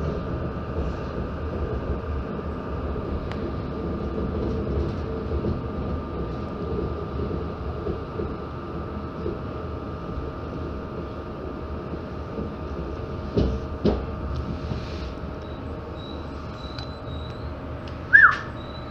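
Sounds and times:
train wheels rumbling on rails: 0.0 - 18.9
high whine: 15.3 - 18.9.

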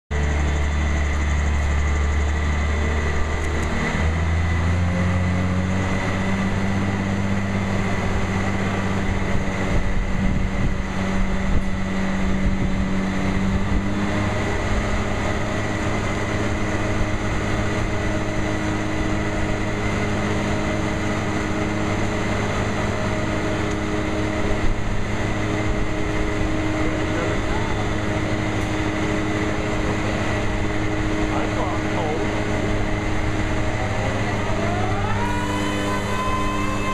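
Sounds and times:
crane diesel engine under load: 0.1 - 36.9.

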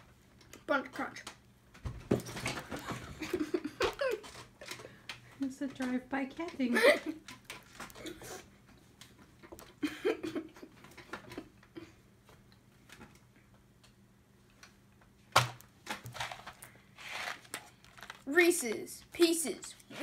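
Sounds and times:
boy giggling: 2.8 - 4.8, 6.6 - 7.2, 9.8 - 11.9.

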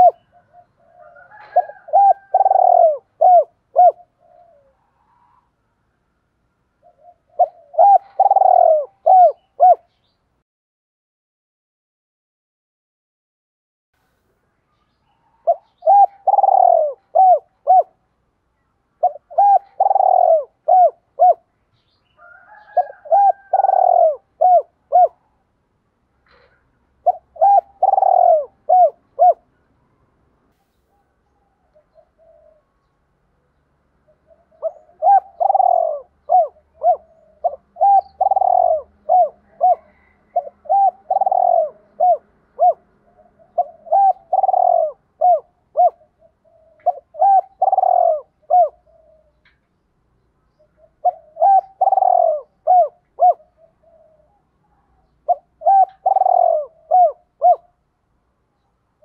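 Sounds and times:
dove cooing: 0.0 - 5.5, 6.8 - 10.0, 15.2 - 18.0, 19.0 - 21.5, 22.2 - 25.4, 26.2 - 29.5, 30.9 - 32.8, 34.1 - 49.6, 50.6 - 57.8.

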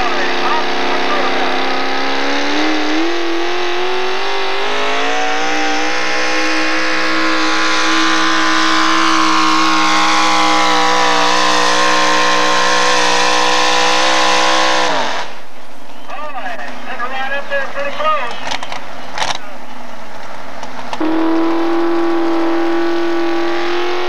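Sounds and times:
truck engine at full throttle: 0.0 - 16.0, 16.7 - 24.0.

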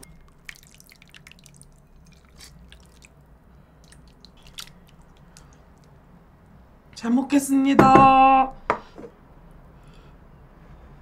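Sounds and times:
broth dripping and squishing: 0.0 - 6.0.

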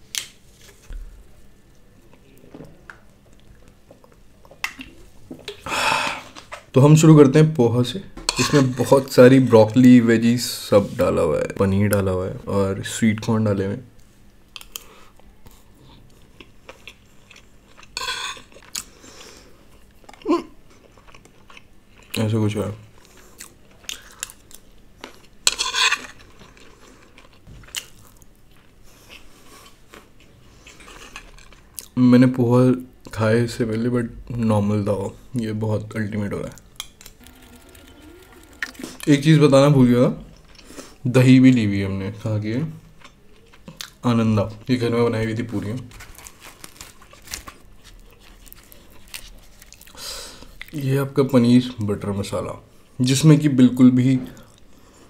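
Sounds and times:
crunchy chewing: 45.6 - 50.8.

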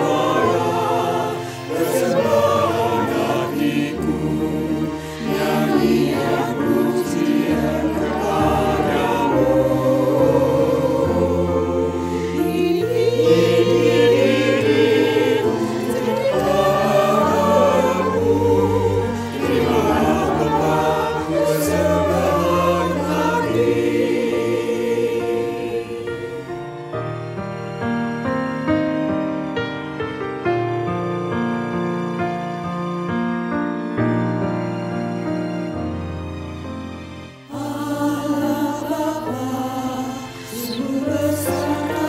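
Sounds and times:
choir singing: 0.0 - 27.1, 37.4 - 42.0.

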